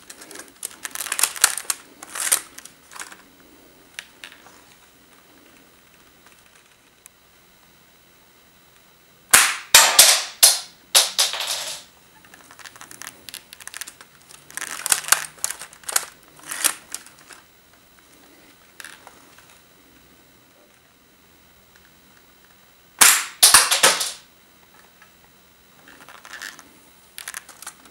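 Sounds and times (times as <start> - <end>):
sharp plastic clacks: 9.3 - 17.4, 23.0 - 24.2, 27.2 - 27.9
plastic clicks and rattles: 27.2 - 27.8.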